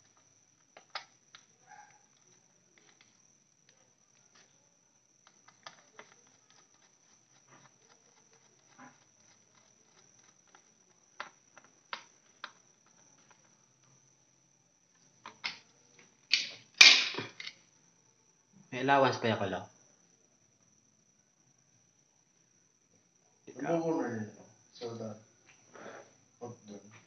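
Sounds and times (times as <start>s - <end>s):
screwdriver clicking and scraping: 5.2s - 13.4s.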